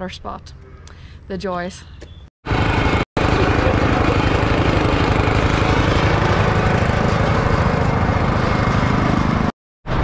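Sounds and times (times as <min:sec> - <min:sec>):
quad bike engine running: 0:02.5 - 0:09.5
small engine running: 0:02.5 - 0:10.0.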